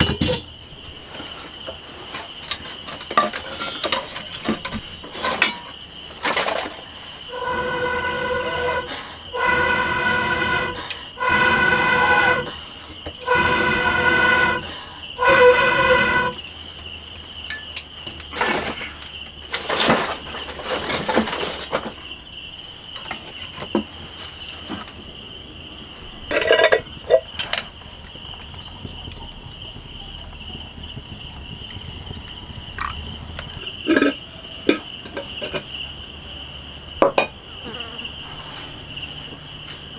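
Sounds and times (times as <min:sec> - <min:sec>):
firewood clicks and crackles: 0:00.3 - 0:07.2, 0:16.4 - 0:35.9
hooting blows through a blowpipe: 0:07.3 - 0:16.5.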